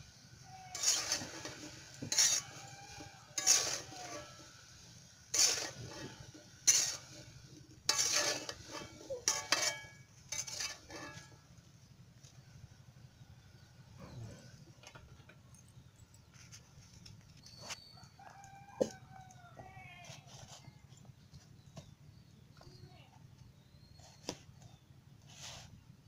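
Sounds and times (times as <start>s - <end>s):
metal spatula scraping pan: 0.4s - 11.5s.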